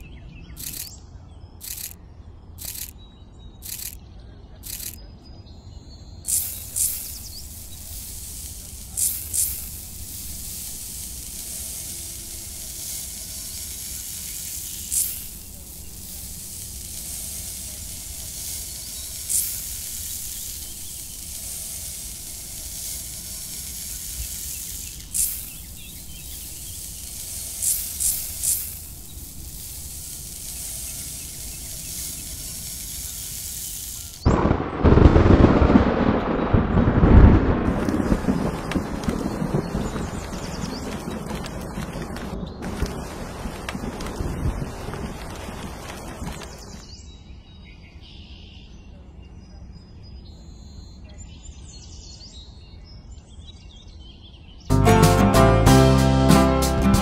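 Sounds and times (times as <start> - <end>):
metal trowel scraping soil: 3.6 - 4.0, 4.6 - 5.0, 6.3 - 34.3
steady background hiss: 5.8 - 34.4.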